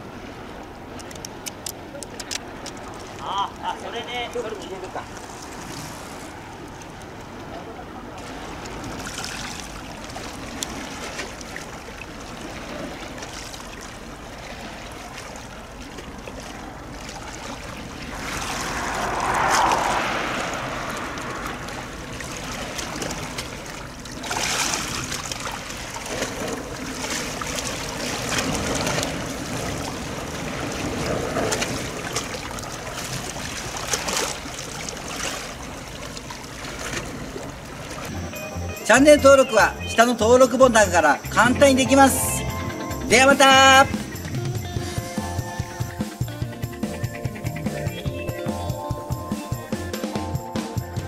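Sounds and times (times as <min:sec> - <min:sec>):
water splashing along shore: 0:00.0 - 0:38.3.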